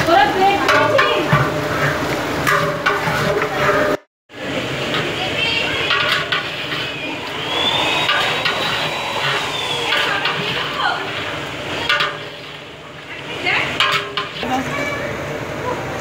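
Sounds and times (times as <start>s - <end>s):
metal utensils clanking on pots: 0.0s - 4.0s, 4.8s - 14.6s.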